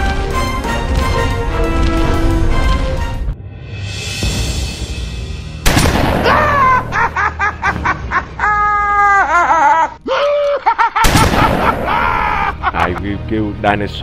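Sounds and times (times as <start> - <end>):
man's cartoonish villain laugh: 6.2 - 13.0.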